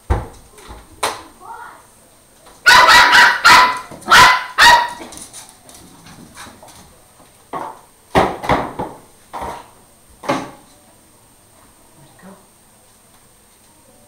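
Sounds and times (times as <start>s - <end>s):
puppy barking: 2.6s - 5.2s.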